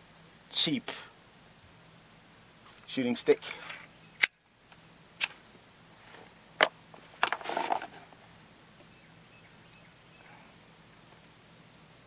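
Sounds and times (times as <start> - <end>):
insects chirring: 0.0 - 12.0
pistol handling rattle: 6.6 - 8.1.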